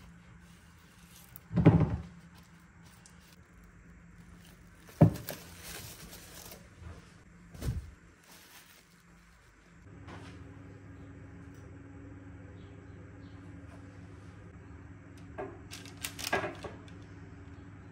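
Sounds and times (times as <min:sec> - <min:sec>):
cling film crinkling: 0:00.0 - 0:06.8, 0:07.6 - 0:09.8, 0:15.7 - 0:16.7.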